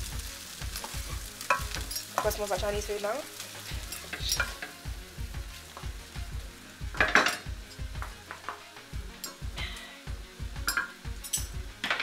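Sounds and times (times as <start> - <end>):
wooden spoon scraping wok: 0.0 - 9.3
rice sizzling in wok: 0.0 - 12.0
music with low beat: 3.7 - 12.0.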